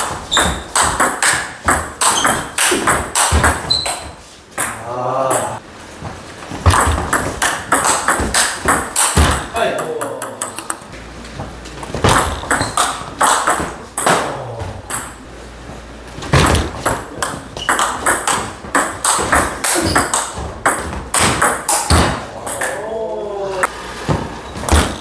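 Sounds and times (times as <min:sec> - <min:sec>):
table tennis ball hits: 0:00.0 - 0:05.5, 0:06.6 - 0:10.9, 0:11.9 - 0:15.2, 0:16.3 - 0:22.8
ball bouncing on table: 0:00.3 - 0:04.8, 0:06.7 - 0:10.8, 0:12.0 - 0:14.3.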